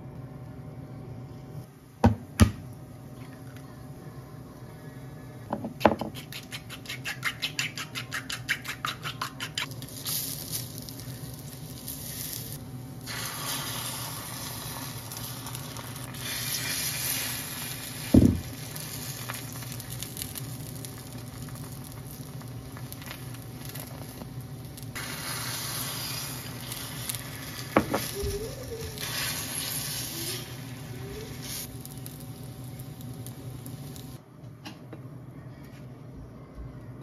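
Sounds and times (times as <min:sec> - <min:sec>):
chopsticks beating egg in bowl: 0:05.9 - 0:09.7
egg sizzling in hot pan: 0:08.4 - 0:34.2.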